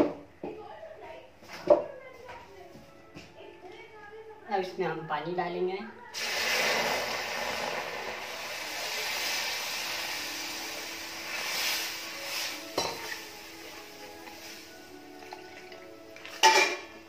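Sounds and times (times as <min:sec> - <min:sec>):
water splashing into pan: 0:06.2 - 0:10.0, 0:15.2 - 0:17.0.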